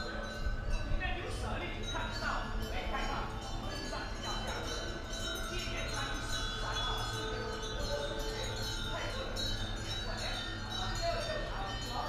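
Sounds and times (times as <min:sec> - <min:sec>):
small hanging bells chiming: 0:00.0 - 0:12.0.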